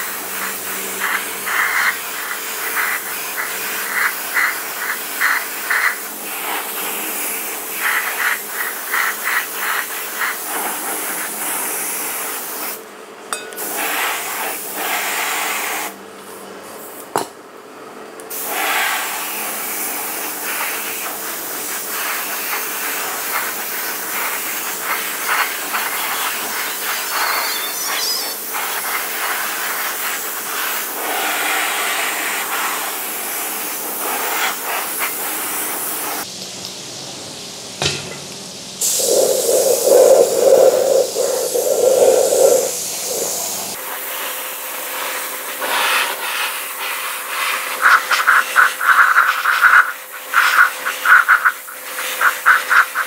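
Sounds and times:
air spray gun hissing: 0.0 - 12.8, 38.8 - 44.3.

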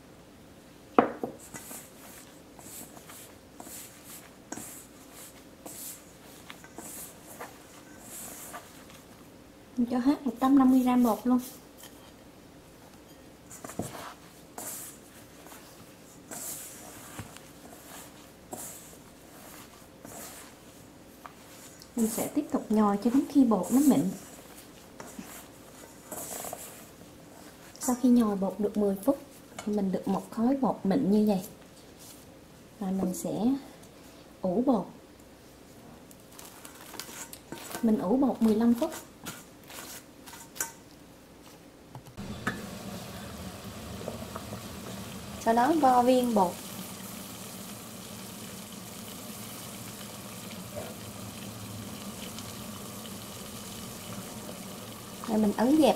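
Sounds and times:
gloved hand kneading dough: 1.3 - 9.3, 13.5 - 28.4, 36.3 - 40.6
pot of water heating: 13.6 - 30.4, 42.2 - 55.9
plastic wrap crinkling: 36.2 - 37.9.

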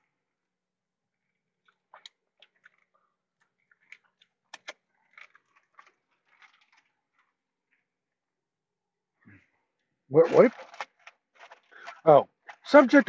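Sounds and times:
man chewing wet smacks: 1.6 - 7.3.

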